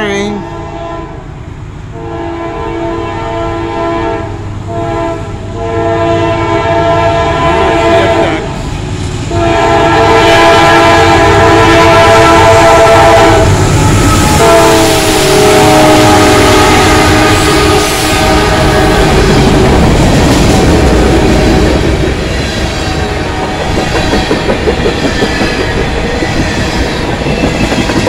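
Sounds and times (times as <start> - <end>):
train engine and wheel rumble: 0.0 - 28.0
locomotive air horn blasts: 0.4 - 1.2, 1.9 - 8.4, 9.3 - 19.5.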